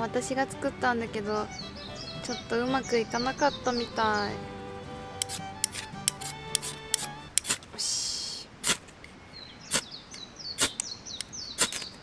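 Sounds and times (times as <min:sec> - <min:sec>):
small birds chirping: 0:00.1 - 0:12.0
ferro rod scraping: 0:05.1 - 0:07.7.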